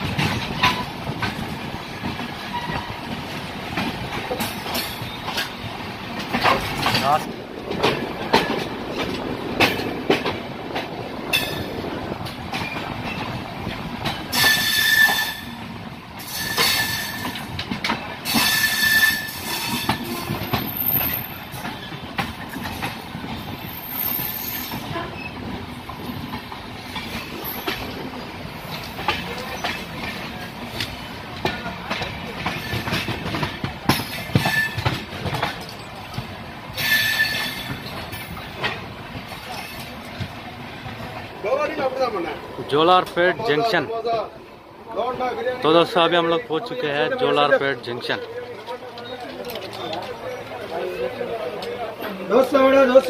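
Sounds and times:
wheels clicking over rail joints: 0.0 - 44.2, 44.9 - 53.0
train rumbling on rails: 0.0 - 53.0
high metallic wheel squeals: 14.3 - 15.5, 16.3 - 17.2, 18.3 - 21.4, 23.7 - 25.4, 36.8 - 37.8.

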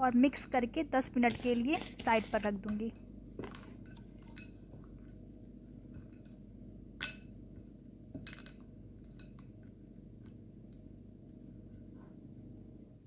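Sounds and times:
low steady hum: 0.0 - 13.0
hand squishing grated potato: 0.2 - 2.9.

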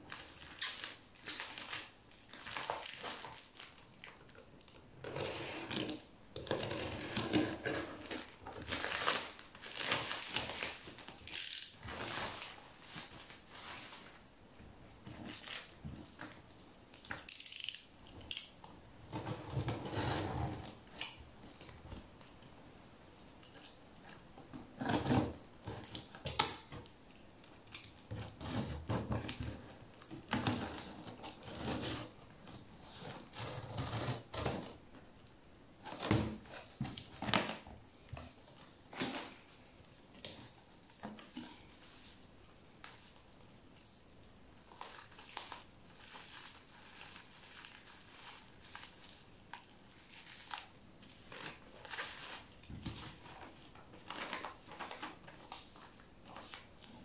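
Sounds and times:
packing tape being slit and scraped: 0.1 - 14.2, 17.0 - 21.8, 24.6 - 26.8, 27.6 - 34.8, 44.6 - 57.0.

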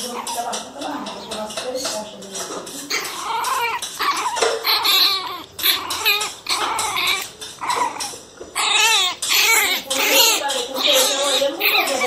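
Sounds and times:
puppies yapping and yelping: 2.8 - 12.0.

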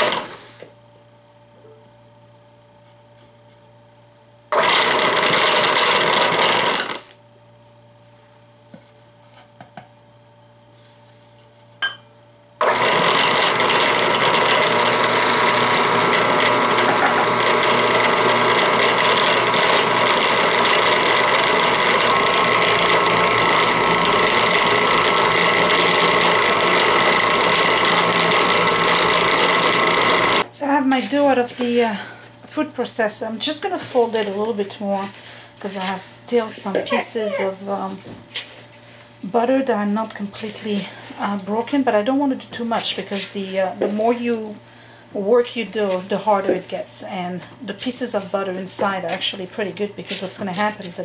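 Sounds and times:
food processor motor running: 0.0 - 0.7, 4.5 - 7.2, 12.6 - 30.5.

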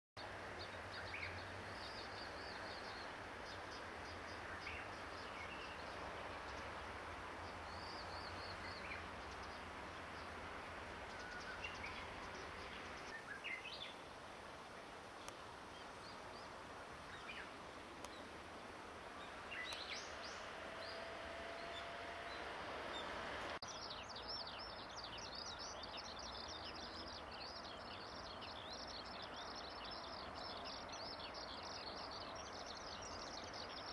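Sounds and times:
outdoor background hiss: 0.2 - 33.9
skylark twittering song: 21.6 - 33.9.

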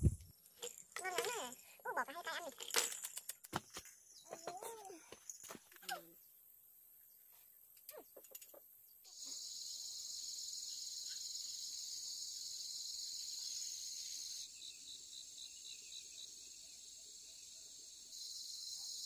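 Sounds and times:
insects trilling: 8.0 - 19.0.

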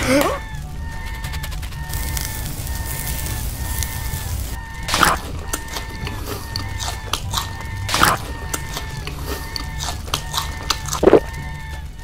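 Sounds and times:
quiet background music: 0.0 - 12.0
chewing clicks: 4.8 - 11.8.

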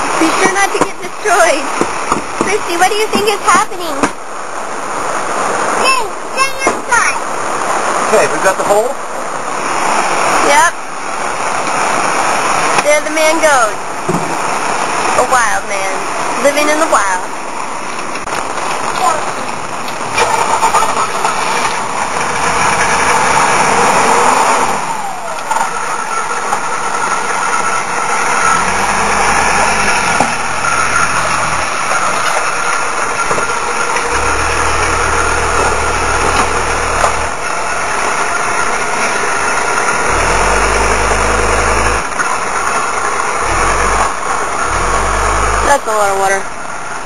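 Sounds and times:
rain noise: 0.0 - 47.0
diesel engine idling: 20.0 - 47.0.

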